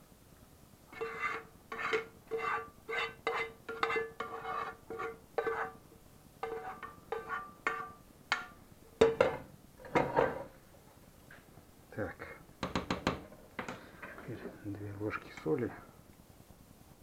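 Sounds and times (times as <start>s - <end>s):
spatula scraping a frying pan: 0.9s - 5.8s, 6.4s - 8.6s.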